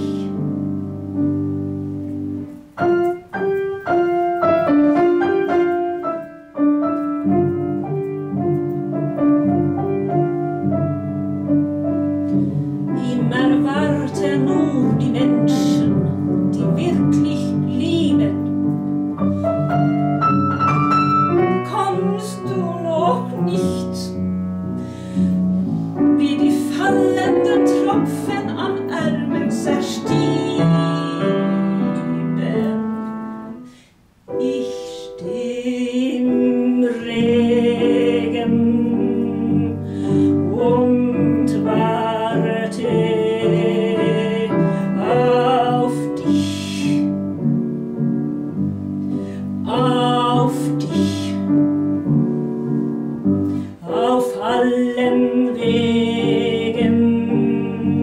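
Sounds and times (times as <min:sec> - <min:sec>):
grand piano: 0:00.0 - 0:58.0
woman singing with vibrato: 0:12.9 - 0:18.5, 0:21.5 - 0:24.2, 0:26.1 - 0:33.1, 0:34.3 - 0:47.2, 0:49.6 - 0:51.6, 0:53.8 - 0:58.0.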